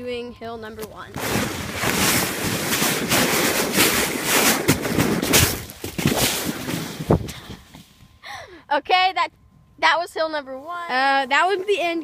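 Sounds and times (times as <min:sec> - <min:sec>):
sled bumping knocks: 0:00.7 - 0:07.4
sled sliding on snow: 0:01.2 - 0:07.3.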